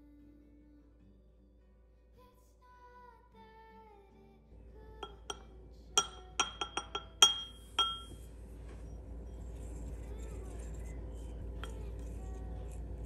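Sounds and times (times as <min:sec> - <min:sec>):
spoon clinking porcelain bowl: 0:05.0 - 0:08.3, 0:10.6 - 0:12.2.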